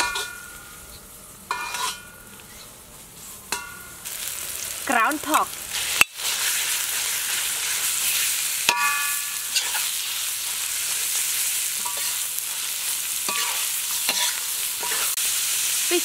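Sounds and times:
meat sizzling in a wok: 0:00.0 - 0:16.0
metal spoon clinking against wok: 0:01.5 - 0:02.1, 0:08.7 - 0:09.9, 0:13.3 - 0:15.1.

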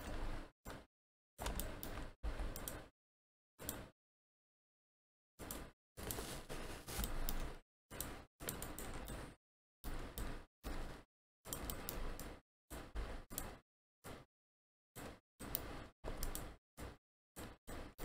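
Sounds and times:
mouse and keyboard clicks: 0:01.4 - 0:02.9, 0:05.5 - 0:10.9, 0:11.5 - 0:12.4, 0:15.0 - 0:16.6.

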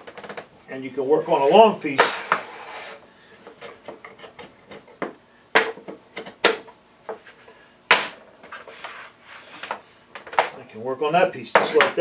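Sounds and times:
wood rubbing on worktop: 0:01.2 - 0:05.2, 0:07.1 - 0:10.4.

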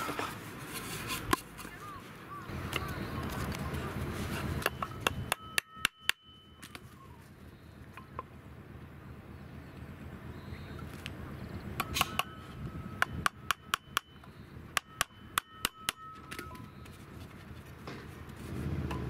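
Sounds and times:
small hammer tapping metal: 0:04.6 - 0:06.8, 0:13.0 - 0:16.6.

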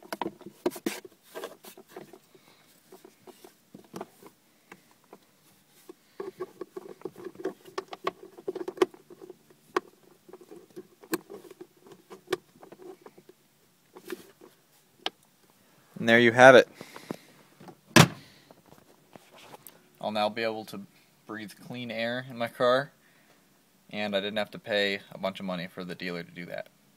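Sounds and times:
plastic clicks taps and rubbing: 0:05.8 - 0:15.2.

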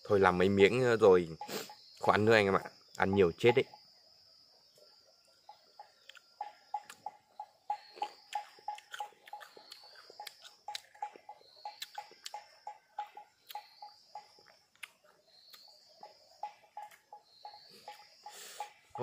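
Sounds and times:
chewing and crunching fruit: 0:05.8 - 0:18.1.

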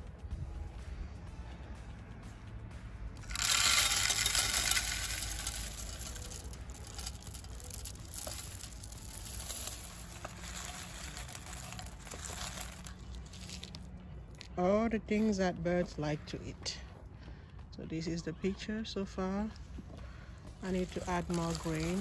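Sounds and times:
seeds pouring onto wood: 0:03.2 - 0:13.9, 0:20.6 - 0:22.0.

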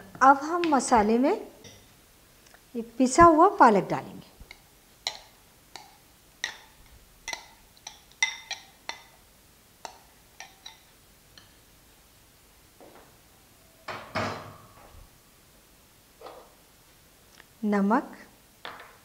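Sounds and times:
ladle clinking against glass bowls: 0:07.3 - 0:09.2.

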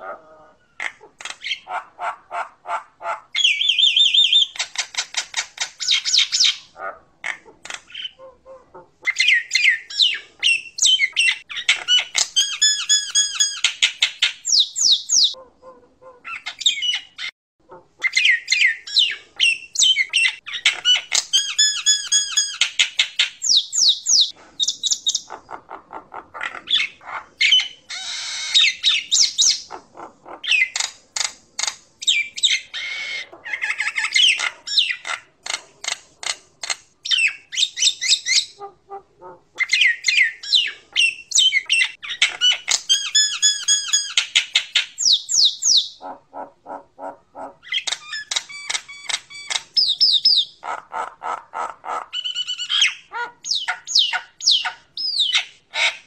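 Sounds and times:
myna bird singing: 0:03.4 - 0:08.3, 0:09.0 - 0:15.4, 0:16.3 - 0:17.3, 0:18.0 - 0:25.8, 0:26.4 - 0:38.7, 0:39.6 - 0:46.2, 0:47.4 - 0:50.6, 0:52.1 - 0:56.0.

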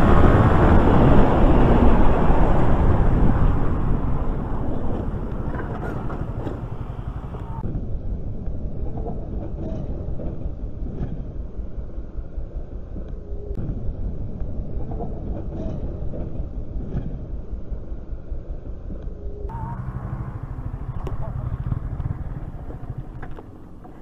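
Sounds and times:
wind rumbling on microphone: 0:00.0 - 0:24.0
motorcycle engine running: 0:03.1 - 0:07.6, 0:19.5 - 0:24.0.

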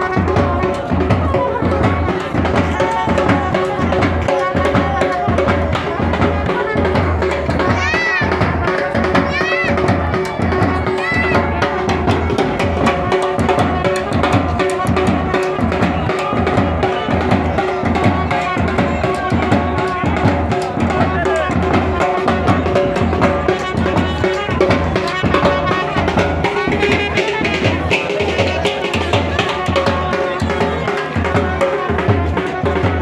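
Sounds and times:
bass drums beating: 0:00.0 - 0:33.0
snare drums beating: 0:00.0 - 0:33.0
trumpet notes: 0:12.8 - 0:33.0.

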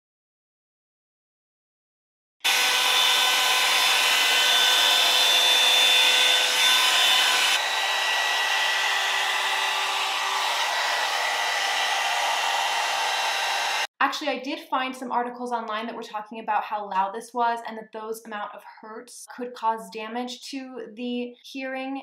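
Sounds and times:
blow dryer brush whining: 0:02.4 - 0:13.9.

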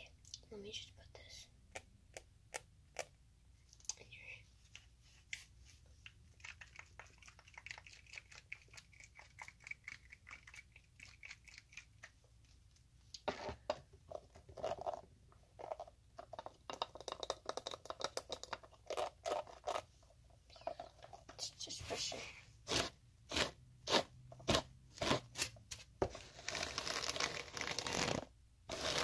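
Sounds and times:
objects knocking and rustling: 0:13.2 - 0:18.8.

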